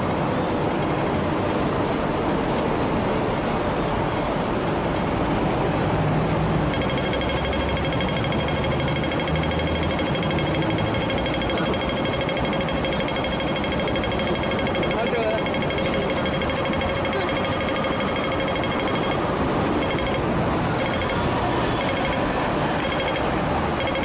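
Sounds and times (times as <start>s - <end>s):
rapid mechanical hammering: 6.2s - 20.2s, 23.8s - 24.0s
high whine: 6.7s - 24.0s.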